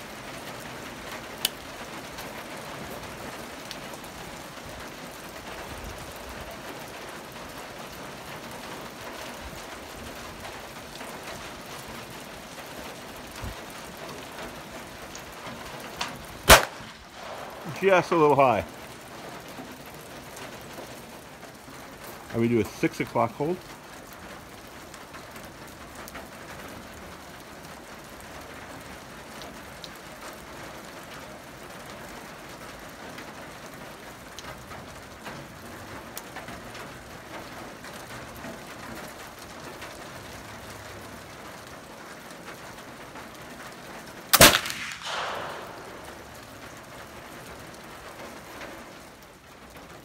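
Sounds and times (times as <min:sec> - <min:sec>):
rifle shot with echo: 0:16.5 - 0:18.3, 0:44.4 - 0:46.4.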